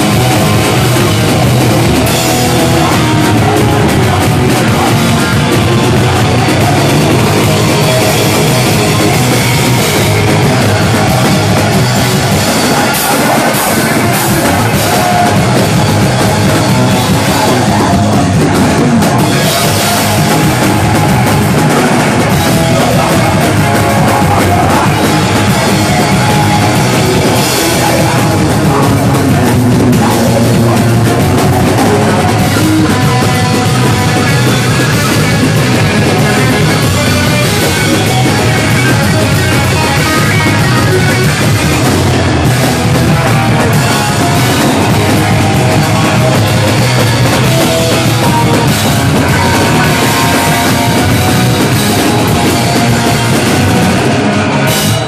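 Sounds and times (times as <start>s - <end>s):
bass guitar: 0.0s - 55.0s
distorted electric guitar: 0.0s - 55.0s
drums: 0.0s - 55.0s.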